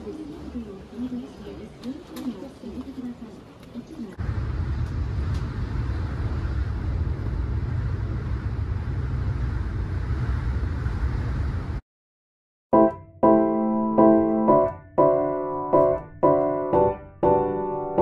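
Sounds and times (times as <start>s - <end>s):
train rumbling inside carriage: 0.0s - 11.8s
piano music: 12.7s - 18.0s.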